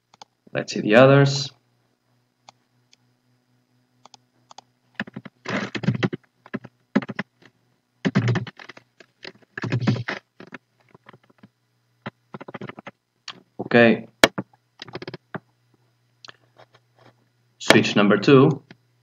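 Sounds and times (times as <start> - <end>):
faint low hum: 0.0 - 19.0
typing on computer keyboard: 4.0 - 7.3, 8.0 - 11.4, 12.3 - 13.0, 14.2 - 15.2.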